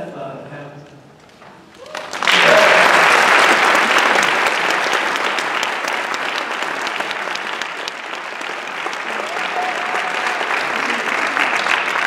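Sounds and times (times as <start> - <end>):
audience applauding: 1.7 - 12.0.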